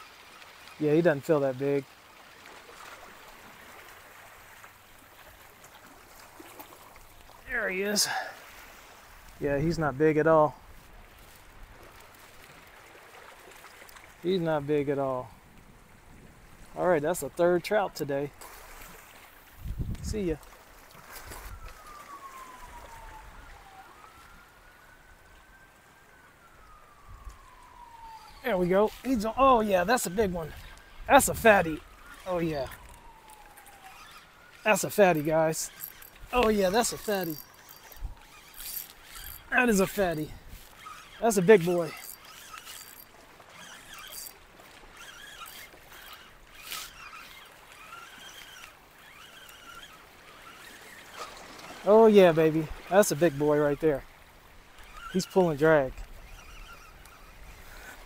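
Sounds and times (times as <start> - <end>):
fishing reel whine: 3.0 - 10.2, 18.4 - 25.4, 26.5 - 58.0
faint water wash: 20.4 - 58.0.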